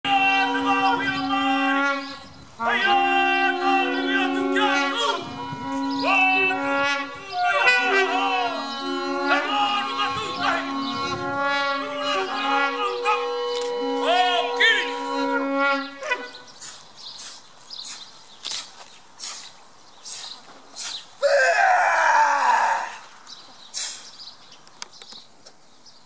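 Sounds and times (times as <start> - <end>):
voices calling: 0.0 - 24.9
trumpet long held notes: 0.1 - 16.5.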